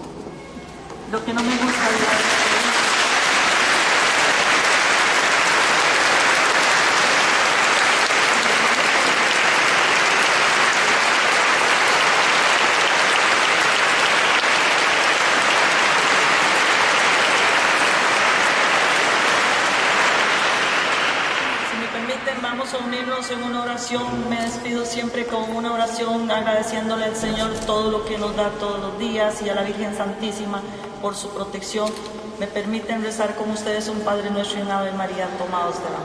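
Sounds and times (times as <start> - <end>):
large audience applauding: 1.4 - 22.4.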